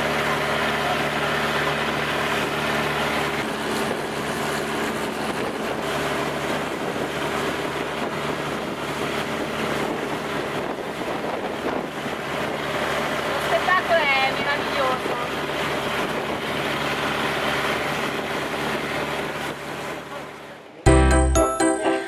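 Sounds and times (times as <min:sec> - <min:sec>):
boat engine running: 0:00.0 - 0:20.5
wind buffeting microphone: 0:03.4 - 0:13.9, 0:14.6 - 0:19.7.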